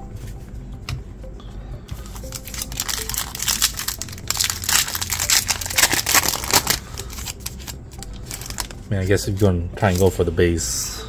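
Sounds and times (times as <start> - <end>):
foil wrapper crinkling: 2.0 - 8.8.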